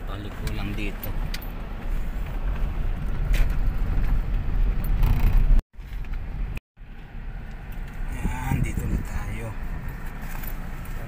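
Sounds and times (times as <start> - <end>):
engine and tyre rumble: 0.0 - 11.0.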